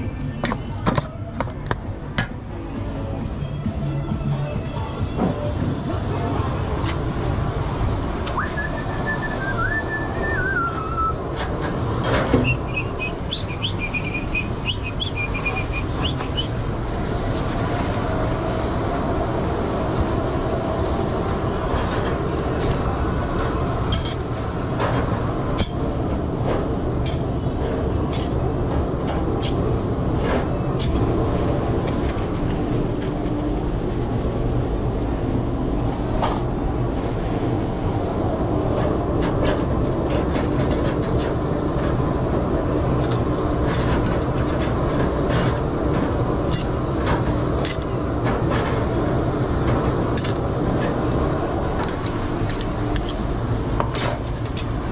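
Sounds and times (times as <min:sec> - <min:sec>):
rumble of kitchen machinery: 0:00.0 - 0:54.9
crockery and cutlery clinking: 0:11.4 - 0:12.6, 0:21.7 - 0:25.9, 0:39.2 - 0:41.4, 0:42.9 - 0:48.8.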